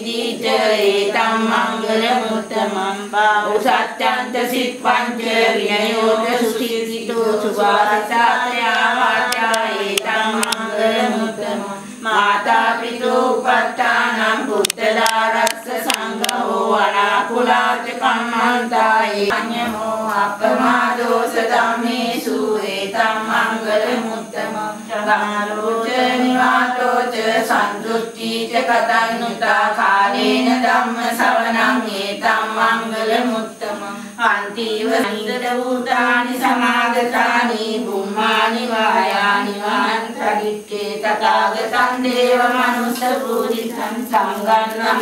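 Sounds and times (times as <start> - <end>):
voices chanting: 0.0 - 45.0
sharp clicks: 9.2 - 10.6, 14.6 - 16.4.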